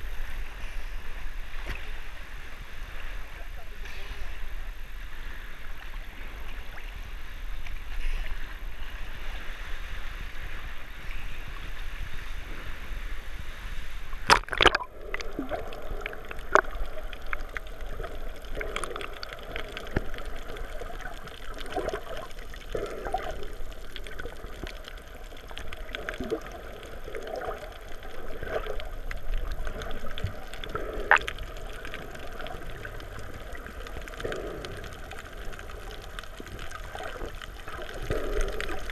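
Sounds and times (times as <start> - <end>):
muffled underwater water noise: 0.0 - 38.9
sea water lapping in a cave: 0.0 - 38.9
underwater bubbling: 0.0 - 38.9
sharp water splash: 14.2 - 14.9
underwater clicks: 14.2 - 38.9.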